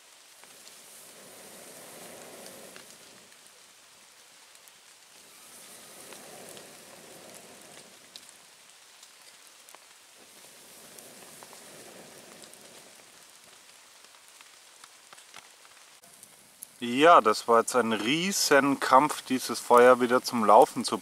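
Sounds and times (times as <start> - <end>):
person blowing into campfire: 0.0 - 3.7, 4.6 - 13.6
small fire crackles: 0.0 - 21.0.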